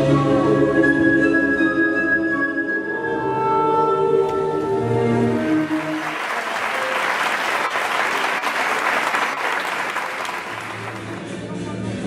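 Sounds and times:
music: 0.0s - 12.0s
audience applauding: 5.4s - 11.3s.

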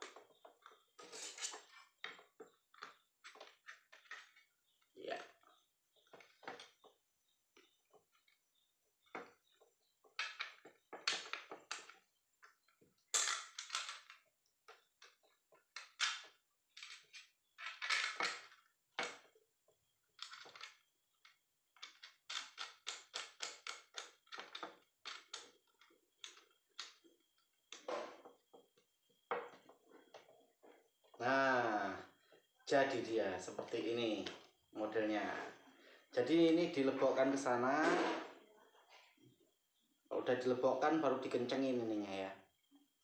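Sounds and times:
metal scraping on plastic: 0.0s - 4.8s, 37.8s - 38.4s.

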